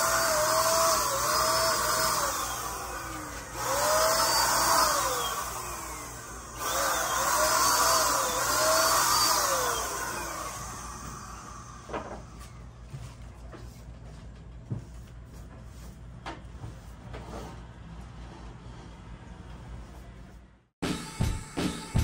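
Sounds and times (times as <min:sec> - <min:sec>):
electric paint sprayer hissing: 0:00.0 - 0:12.6.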